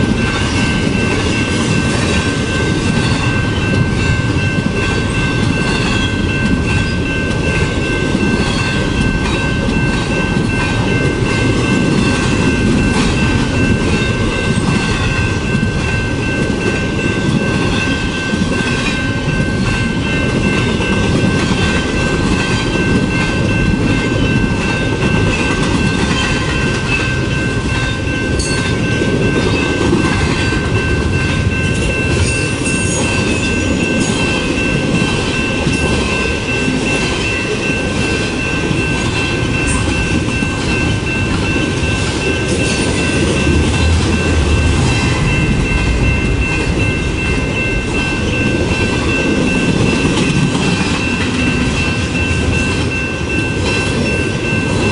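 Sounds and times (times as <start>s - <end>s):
freight train wheels clattering: 0.0s - 54.9s
steady high-pitched tone: 0.0s - 54.9s.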